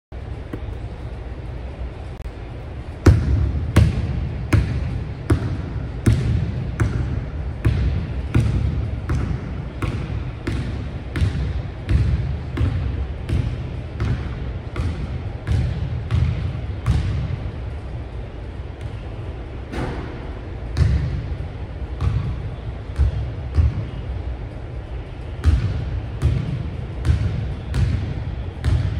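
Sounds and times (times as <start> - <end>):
basketball bouncing on wooden floor: 3.0 - 17.4.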